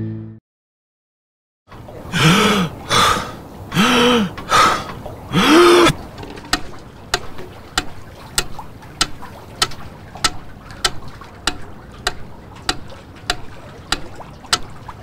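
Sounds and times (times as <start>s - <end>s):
mechanical metronome ticking: 6.5s - 14.8s.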